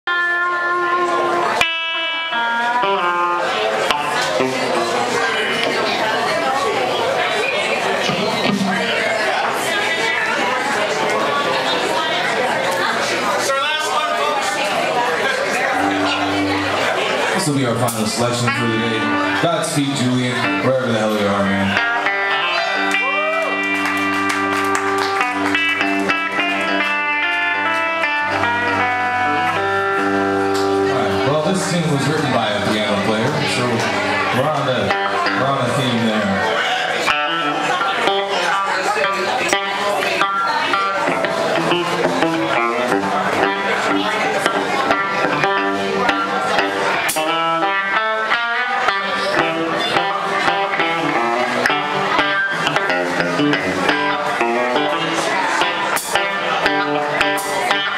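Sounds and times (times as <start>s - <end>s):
electric guitar blues notes: 0.1s - 57.9s
bass holding low notes: 15.6s - 36.6s.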